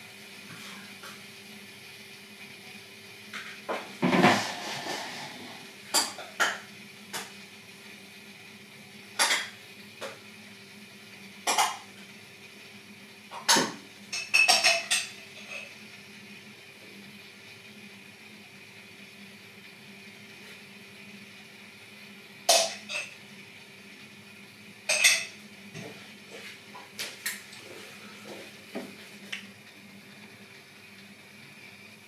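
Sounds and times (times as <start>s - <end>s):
dishes and cutlery clinking: 24.9s - 25.4s.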